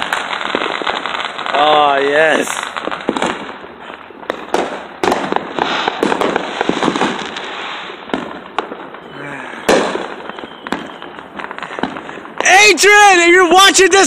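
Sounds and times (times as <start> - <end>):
firework bangs: 0.0 - 14.0
fireworks crackling: 0.0 - 14.0.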